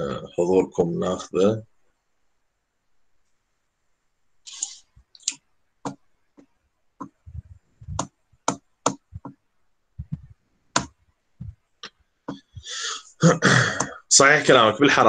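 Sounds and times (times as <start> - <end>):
small objects clicking on a desk: 7.9 - 9.4.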